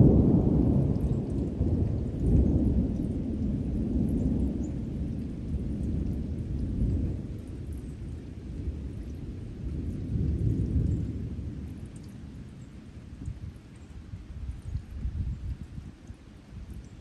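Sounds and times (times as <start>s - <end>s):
rolling thunder: 0.0s - 15.8s.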